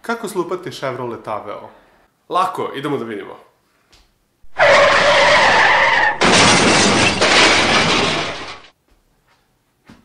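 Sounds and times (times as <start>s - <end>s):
tyres screeching: 4.5s - 8.6s
car crash: 4.5s - 8.7s
glass shattering: 4.6s - 8.7s.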